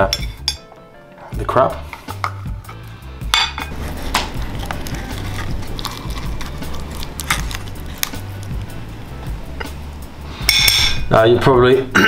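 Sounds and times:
metal spoon scraping crab shell: 3.4s - 8.8s.

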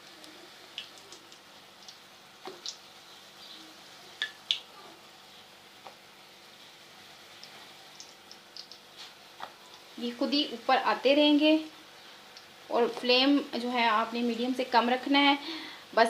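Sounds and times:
oil popping and crackling: 0.0s - 4.9s, 7.2s - 10.5s, 12.0s - 13.2s
food frying in hot fat: 0.0s - 16.0s.

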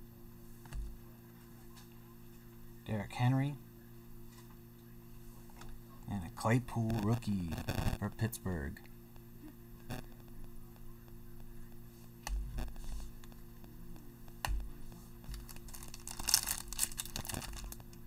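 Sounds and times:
low electrical hum: 0.0s - 18.0s
plastic wrapper crinkling and tearing: 15.3s - 18.0s.

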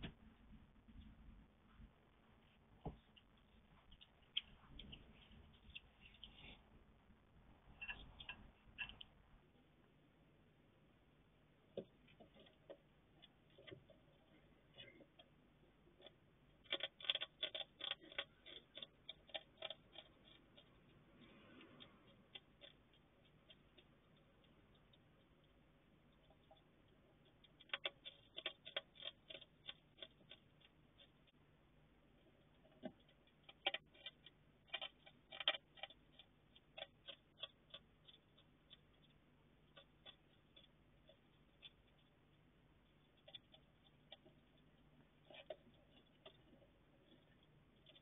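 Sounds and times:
hedgehog crunching dry food: 11.8s - 48.0s.

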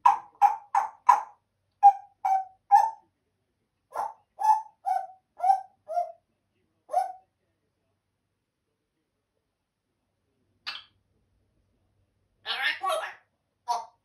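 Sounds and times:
parrot hooting calls: 0.0s - 3.0s, 3.9s - 6.2s, 12.4s - 14.0s.

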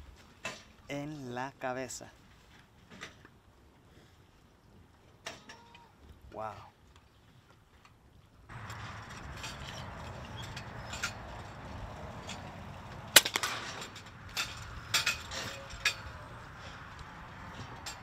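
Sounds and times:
outdoor background noise: 0.0s - 18.0s
air rifle crack: 13.0s - 15.3s.

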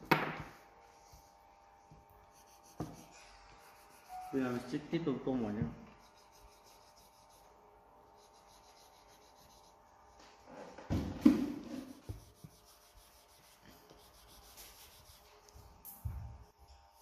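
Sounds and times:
arm rubbing across paper: 2.2s - 4.8s, 5.8s - 10.7s, 11.6s - 15.6s
pencil scratching on paper: 2.2s - 4.8s, 5.8s - 10.6s, 11.6s - 15.6s.

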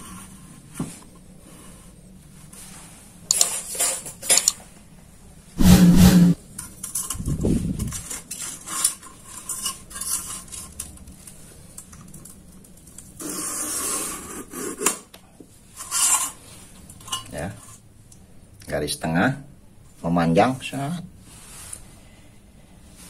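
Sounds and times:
small metallic clicks: 4.3s - 4.6s
metal point scratching plate: 5.6s - 6.4s.

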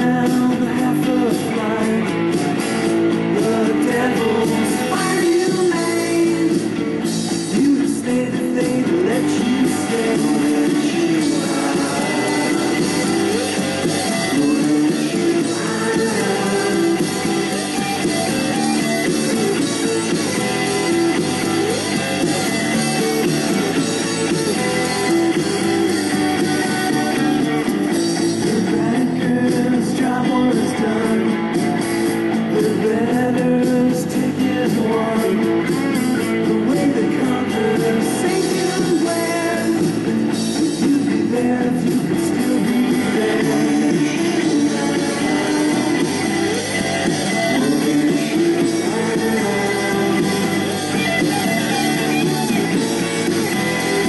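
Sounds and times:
person singing: 0.0s - 27.2s, 28.2s - 31.6s, 32.4s - 54.0s
guitar: 0.0s - 54.0s
rock and roll song: 0.0s - 54.0s.

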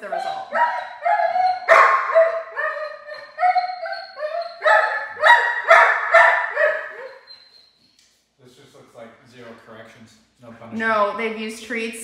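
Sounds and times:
dog barking: 0.0s - 7.3s.

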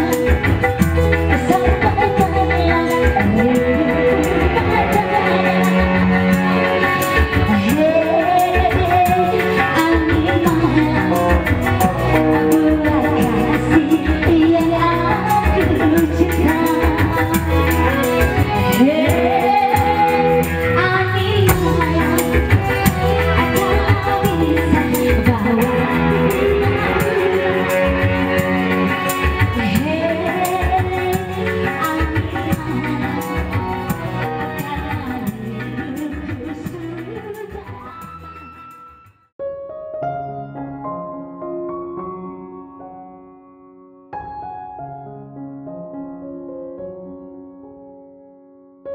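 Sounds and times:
person singing: 0.0s - 38.0s
percussion beat: 0.0s - 39.2s
saxophone: 0.0s - 39.2s.

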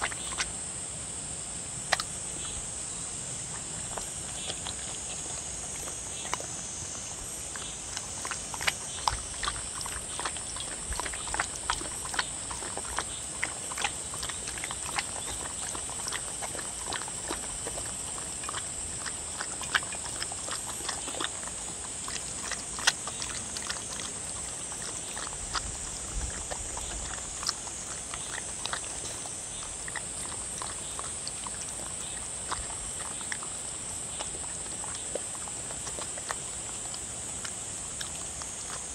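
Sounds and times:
dog lapping and chewing: 0.0s - 0.7s, 1.8s - 38.9s.

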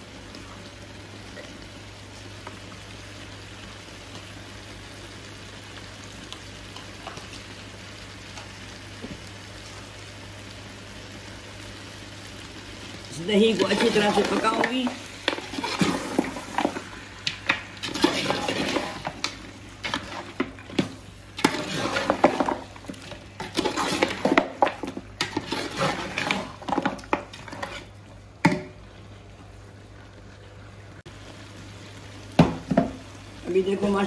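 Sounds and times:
metal spoon stirring in a pot: 13.6s - 27.9s.

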